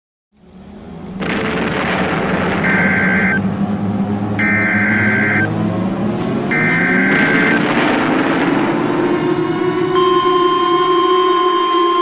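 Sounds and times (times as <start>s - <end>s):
loud steady rumbling din: 0.4s - 12.0s
short high electronic tone: 2.6s - 3.4s, 4.4s - 5.5s, 6.5s - 7.6s, 10.0s - 12.0s
warning siren wailing: 2.6s - 12.0s.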